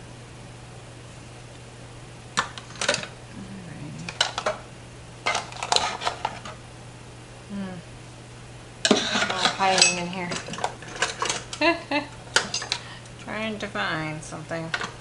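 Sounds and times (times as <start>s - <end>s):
metal utensils clinking: 8.9s - 11.6s, 12.4s - 12.8s.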